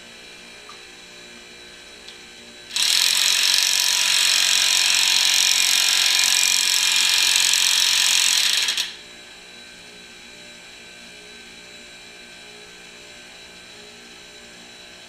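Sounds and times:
electric impact wrench running: 2.7 - 9.0.

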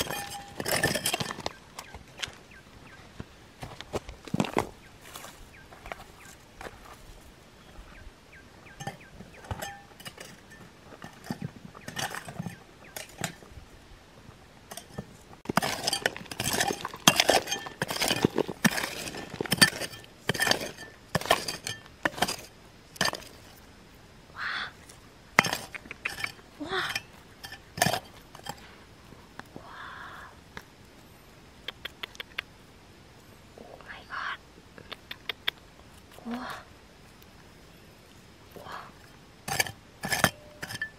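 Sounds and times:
hard objects clinking: 0.0 - 1.6, 8.8 - 13.5, 14.7 - 23.6, 25.4 - 28.7, 39.5 - 40.9.

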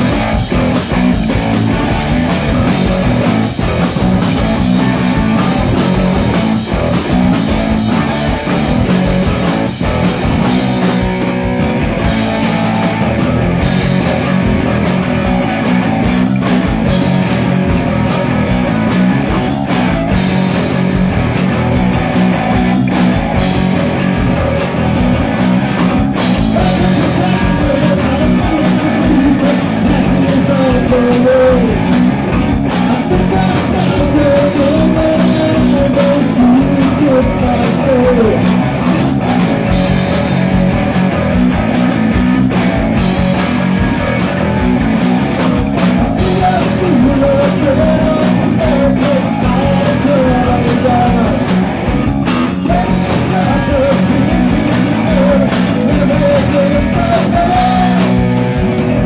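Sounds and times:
person singing: 0.0 - 11.1, 25.8 - 40.1, 45.3 - 59.0
rock band playing live: 0.0 - 59.0.

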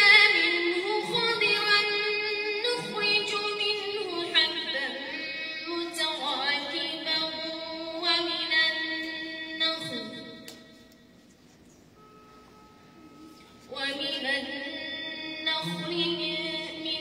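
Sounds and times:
woman chanting melodically: 13.2 - 17.0.

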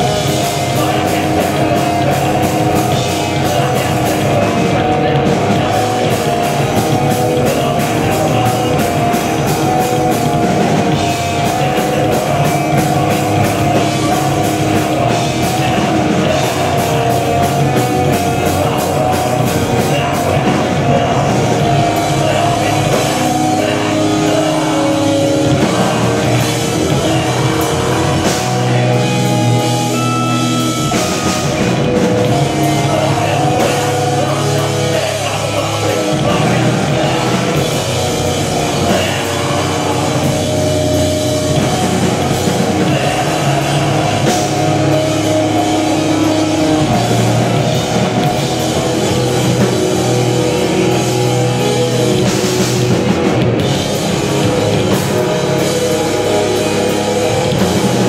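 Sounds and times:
fast drum and cymbal hits: 0.0 - 58.0
heavy rock band playing live: 0.0 - 58.0.

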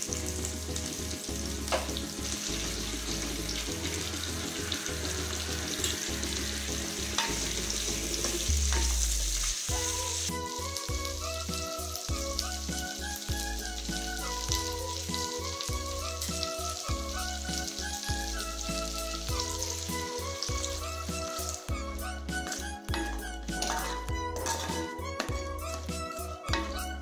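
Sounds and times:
background music with steady beat: 0.0 - 27.0
food sizzling in oil: 0.0 - 27.0
wooden spatula stirring: 22.3 - 27.0.

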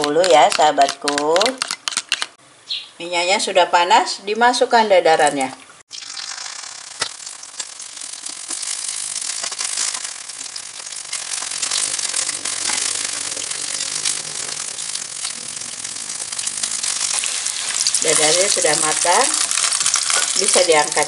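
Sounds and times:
egg sizzling in hot oil: 5.9 - 21.0.

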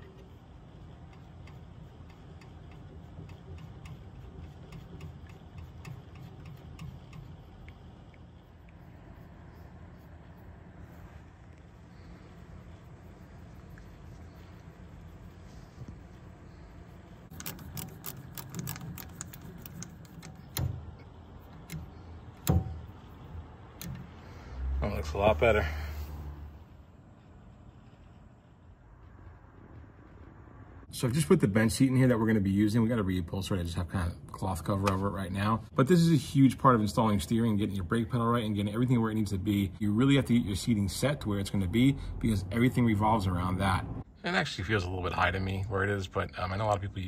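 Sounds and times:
steering column mechanism clicking: 0.0 - 8.8, 15.9 - 24.4
low steady hum: 0.0 - 47.0.

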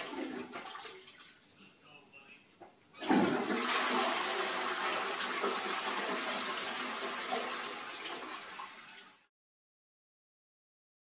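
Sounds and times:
toilet flushing: 0.0 - 1.3, 3.0 - 9.3.

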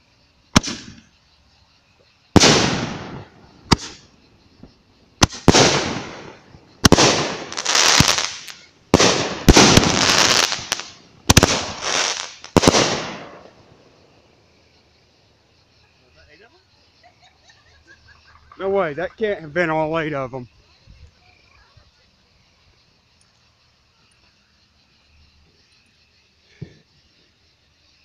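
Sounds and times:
firework shells bursting hiss: 0.0 - 17.0
firework shells banging: 2.4 - 4.1, 5.2 - 13.5.

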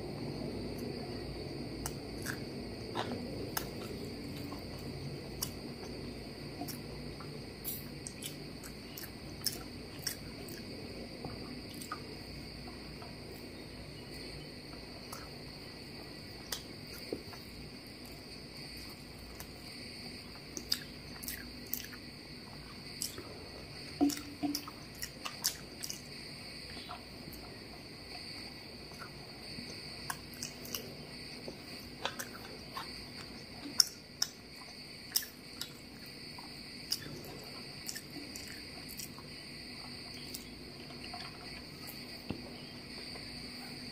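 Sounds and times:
high-pitched background hum: 0.0 - 43.9
chewing and mouth sounds: 1.8 - 12.8, 20.3 - 42.4.

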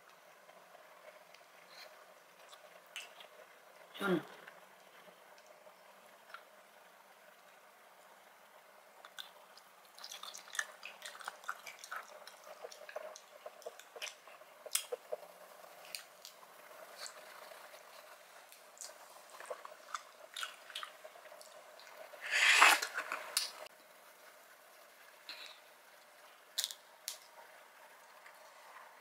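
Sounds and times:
wet squishy eating: 9.1 - 15.2
loud slurp: 22.2 - 23.1.

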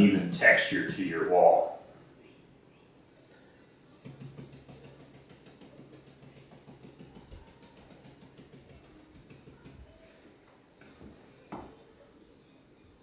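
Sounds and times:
paintbrush tapping on wall: 4.0 - 10.1.

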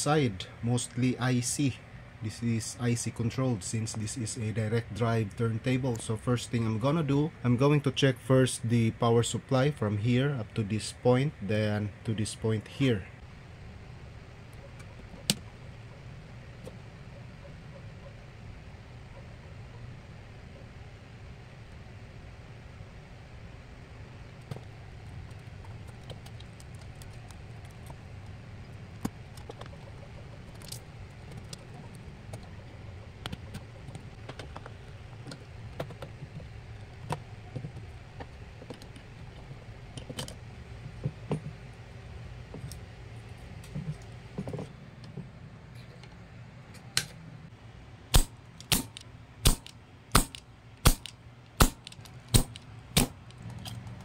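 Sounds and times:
steady low hum: 0.0 - 54.0
clicks and rustles of connectors: 24.4 - 41.5, 48.6 - 54.0
sharp clicks: 48.1 - 54.0.

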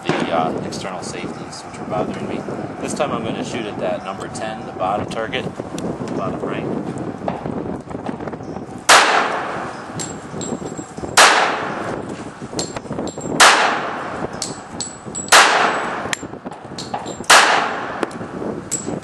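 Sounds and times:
pistol shots: 8.9 - 9.7, 11.2 - 11.9, 13.4 - 14.2, 15.3 - 16.2, 17.0 - 18.1.

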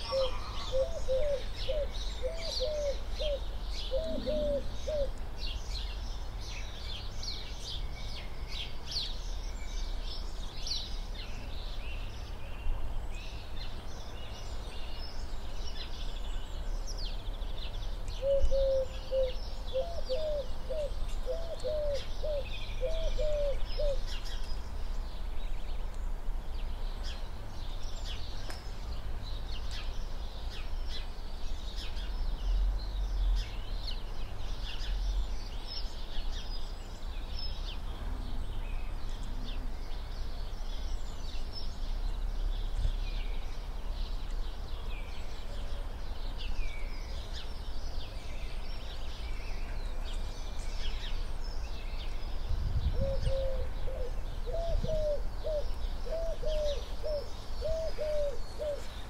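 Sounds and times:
pigeon cooing: 0.0 - 5.2, 18.2 - 24.1, 53.0 - 59.0
small birds chirping: 0.0 - 59.0.

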